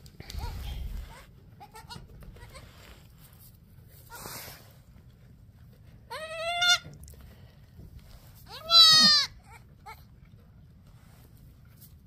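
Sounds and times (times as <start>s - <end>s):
goat bleats: 1.2s - 2.7s, 6.1s - 6.9s, 8.5s - 10.1s.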